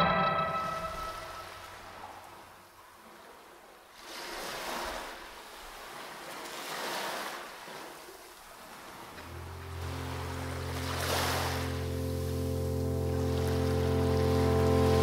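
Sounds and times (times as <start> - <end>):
ambient instrumental music: 0.0 - 2.0, 9.2 - 15.0
low sustained note: 0.0 - 2.1, 9.2 - 15.0
ocean surf washing: 0.0 - 2.4, 4.0 - 15.0.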